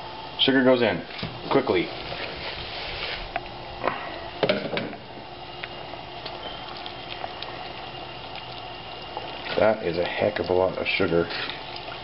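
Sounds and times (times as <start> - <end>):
liquid bubbling in saucepan: 0.0 - 12.0
sugar pouring: 5.6 - 12.0.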